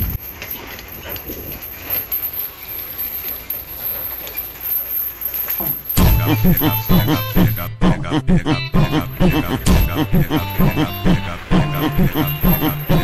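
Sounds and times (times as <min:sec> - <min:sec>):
knocks and rattles: 0:05.4 - 0:07.6.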